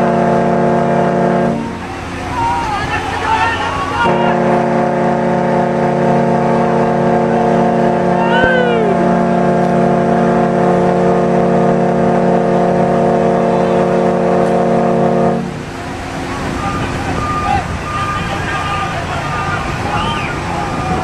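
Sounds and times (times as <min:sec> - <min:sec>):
loud multi-pitch horn blast: 0:00.0 - 0:21.0
person shouting: 0:08.1 - 0:09.2.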